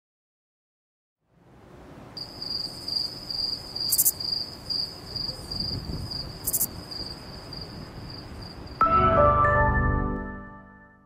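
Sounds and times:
crickets chirping: 2.1s - 8.8s.

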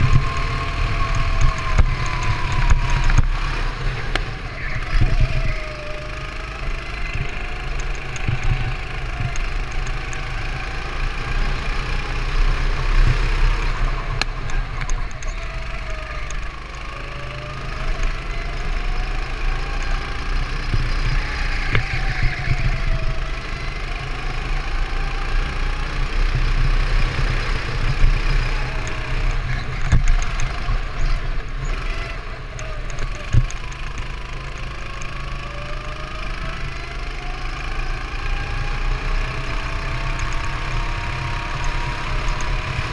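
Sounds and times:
heavy low rumble: 0.0s - 16.8s
go-kart engine revving: 0.0s - 42.9s.

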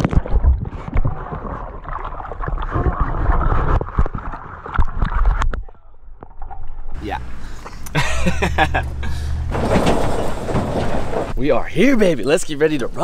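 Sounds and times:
muffled water sloshing underwater: 0.0s - 7.8s.

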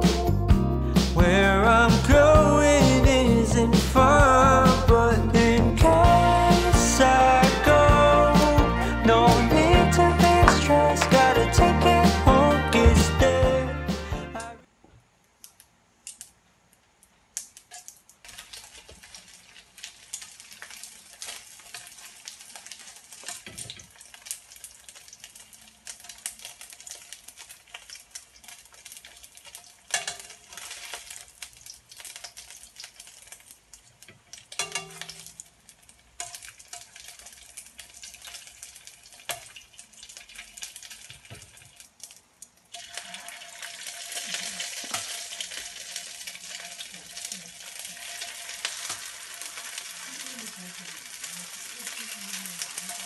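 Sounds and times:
metal tongs clicking on pan: 17.4s - 18.0s, 29.9s - 30.4s, 34.0s - 35.5s
dumplings sizzling in oil: 17.4s - 53.0s.

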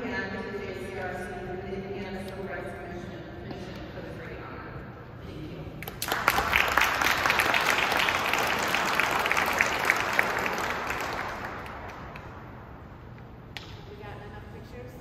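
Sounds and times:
audience applauding: 6.0s - 12.5s.

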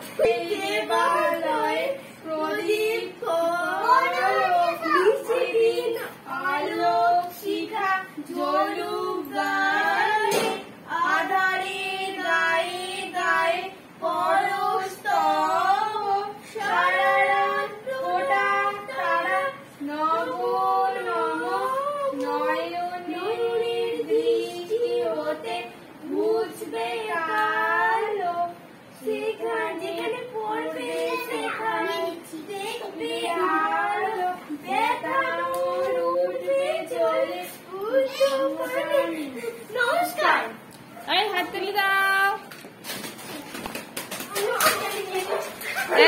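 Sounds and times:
girl and woman singing: 0.0s - 40.2s.

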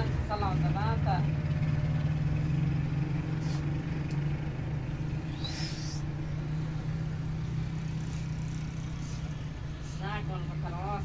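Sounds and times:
high rising chirp: 4.6s - 10.0s.

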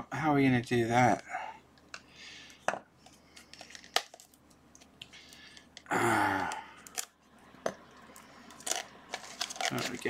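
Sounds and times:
plastic crinkling: 3.1s - 5.8s, 8.2s - 10.0s
knife cutting plastic wrap: 8.5s - 10.0s.

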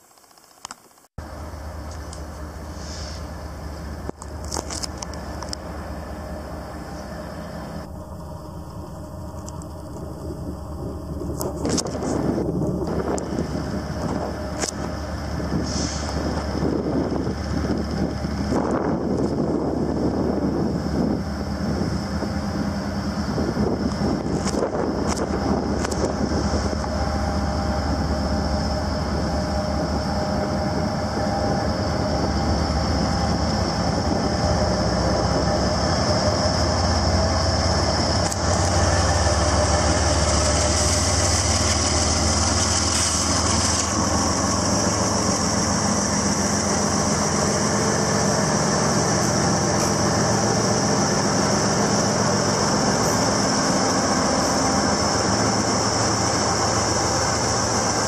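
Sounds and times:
low diesel rumble with hiss: 1.2s - 11.6s, 12.2s - 58.0s
diesel freight train passing: 1.2s - 58.0s.

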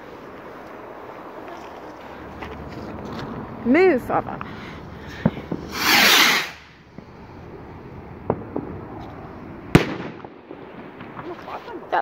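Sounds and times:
firework hiss: 4.8s - 7.7s
sharp firework bang: 5.2s - 7.1s, 9.7s - 11.4s
faint firework pops: 8.2s - 11.8s.

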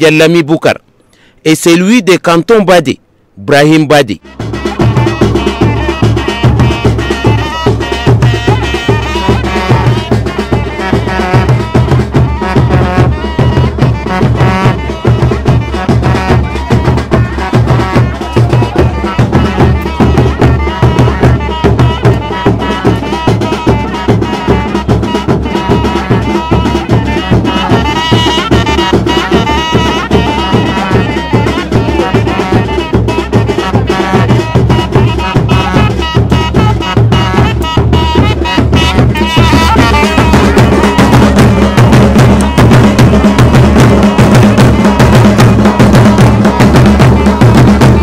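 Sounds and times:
drums beating: 4.0s - 48.0s
wavering folk melody: 4.2s - 48.0s.

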